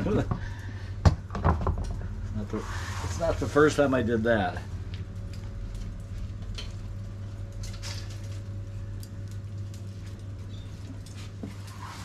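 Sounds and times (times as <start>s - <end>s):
steady low hum: 0.0s - 12.0s
charcoal clicking and scraping: 4.9s - 12.0s.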